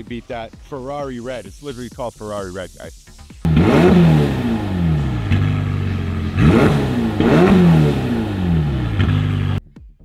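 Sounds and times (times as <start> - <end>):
car engine idling and revving: 3.2 - 9.6.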